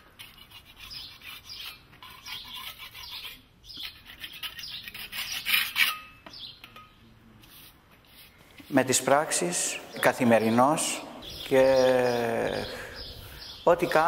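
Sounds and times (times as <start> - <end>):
metal scraper scratching stone: 0.0 - 6.5.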